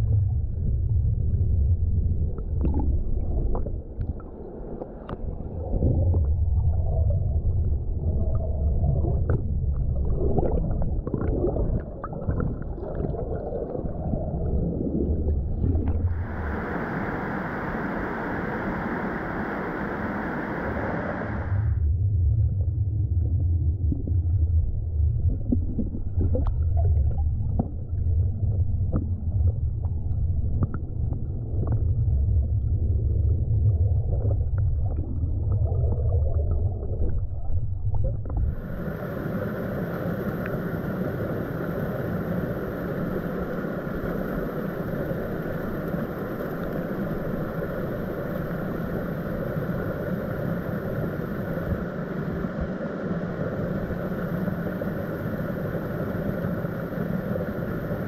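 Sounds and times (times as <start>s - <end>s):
muffled underwater stream rumble: 0.0s - 58.0s
white water rushing over rocks: 16.1s - 21.5s.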